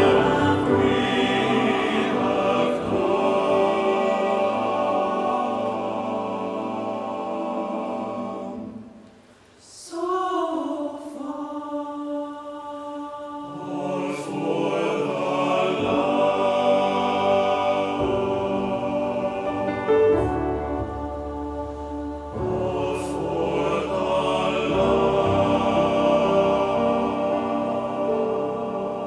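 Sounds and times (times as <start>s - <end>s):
mixed choir singing: 0.0s - 29.0s.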